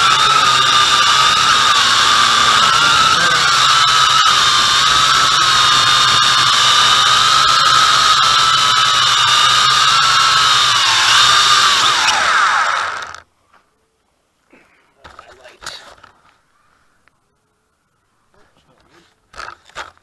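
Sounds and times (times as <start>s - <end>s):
drone propellers whining: 0.0s - 13.2s.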